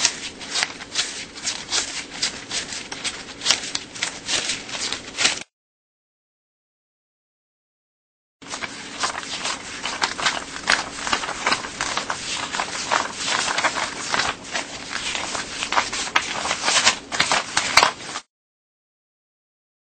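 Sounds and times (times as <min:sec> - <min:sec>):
paper bills flicked by hand: 0:00.0 - 0:05.5, 0:08.4 - 0:18.3.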